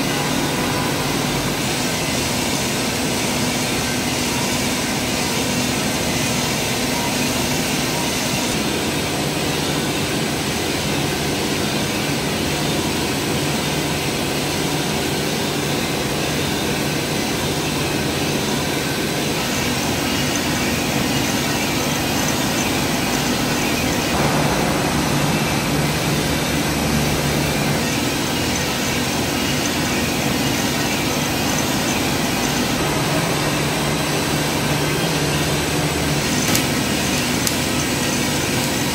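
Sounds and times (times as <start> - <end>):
coffee roaster whooshing: 0.0 - 38.9
low hum: 19.4 - 38.1.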